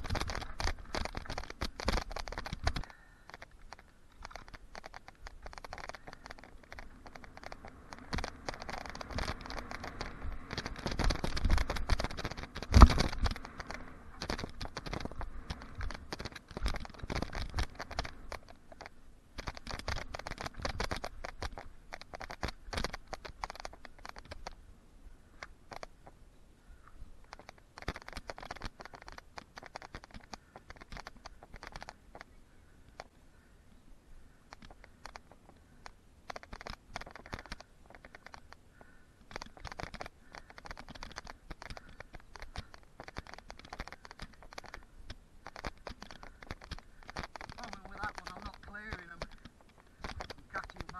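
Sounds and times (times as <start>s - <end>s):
bike rattling and clicking: 0.0s - 24.6s, 27.3s - 33.1s, 34.5s - 50.9s
bike tyre noise on dirt: 0.0s - 26.0s.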